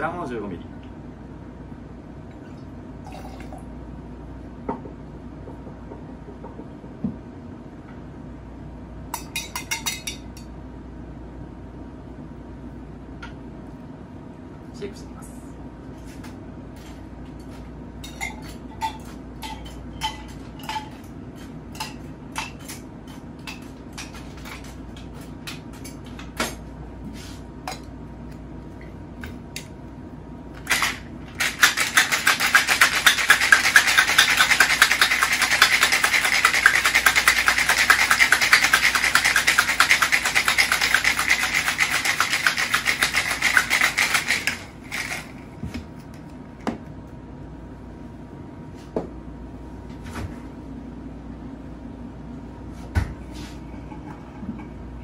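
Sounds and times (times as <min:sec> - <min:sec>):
ice clinking into shaker: 0:30.7 - 0:45.3
ice rattling in shaken shaker: 0:30.7 - 0:45.4.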